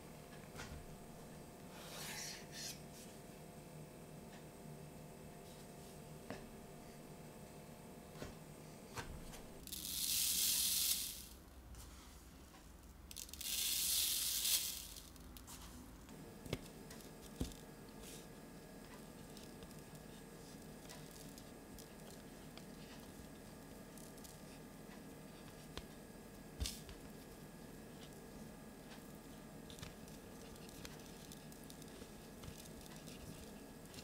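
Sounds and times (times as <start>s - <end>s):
seeds pouring onto metal tray: 9.6s - 11.4s, 13.1s - 15.2s.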